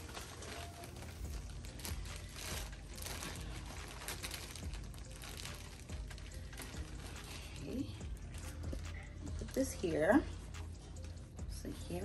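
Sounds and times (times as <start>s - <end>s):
plastic bag crinkling: 0.0s - 9.8s.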